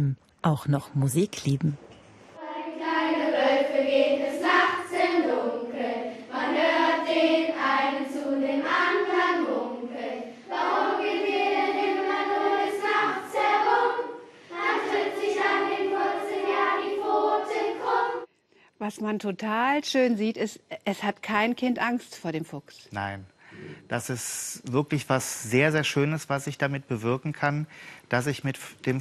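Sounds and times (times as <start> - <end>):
children singing: 2.4 - 18.3.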